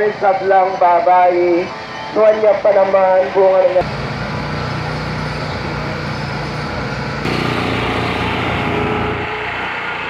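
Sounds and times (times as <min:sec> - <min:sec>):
small engine running: 0:03.8 - 0:10.0.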